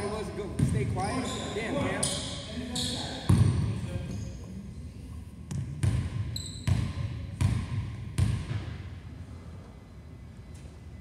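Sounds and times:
basketball bouncing on court: 0:03.2 - 0:03.8, 0:05.5 - 0:08.8.

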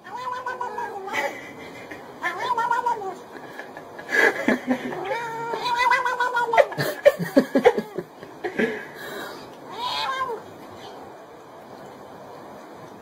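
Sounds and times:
cat yowling: 0:00.0 - 0:01.2, 0:02.2 - 0:03.2, 0:04.9 - 0:06.8, 0:09.7 - 0:11.0.

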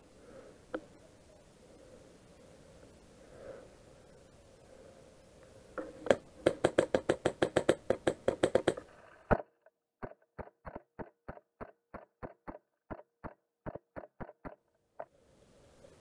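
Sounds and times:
faint steady hum: 0:00.0 - 0:09.4, 0:14.8 - 0:16.0.

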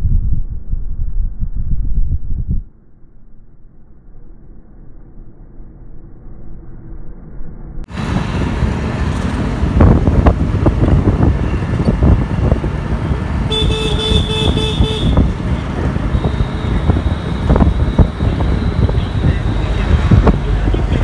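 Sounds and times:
loud street traffic: 0:07.8 - 0:21.0
vehicle horn beeping: 0:13.5 - 0:15.4, 0:16.0 - 0:19.7.

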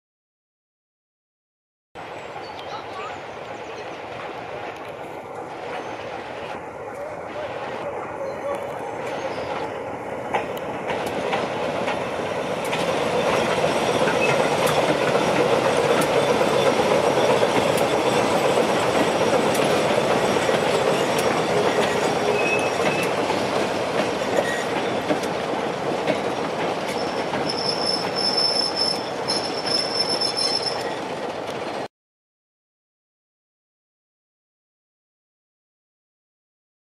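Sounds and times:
diesel locomotive passing: 0:02.0 - 0:31.9
wagons clicking over rail joints: 0:03.4 - 0:31.9
high-pitched wheel squeal: 0:20.2 - 0:23.2, 0:24.4 - 0:25.0, 0:26.9 - 0:31.1.

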